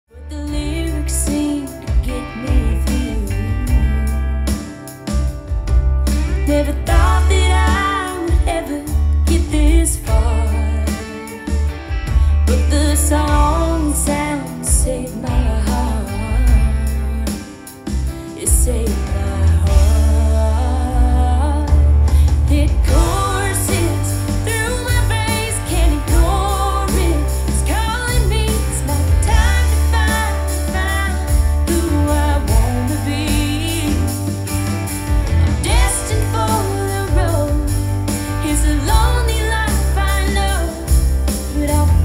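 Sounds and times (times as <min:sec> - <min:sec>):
song through pa speaker: 0:06.4 - 0:11.6, 0:18.4 - 0:34.5, 0:35.3 - 0:42.0.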